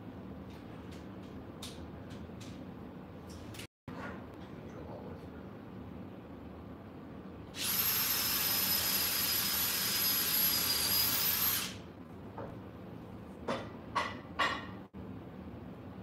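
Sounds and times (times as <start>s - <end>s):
cordless drill drilling into wood: 7.6s - 11.8s.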